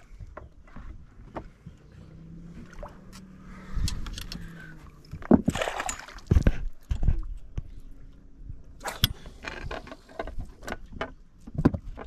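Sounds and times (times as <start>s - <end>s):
fish splashing at water surface: 5.4s - 6.5s.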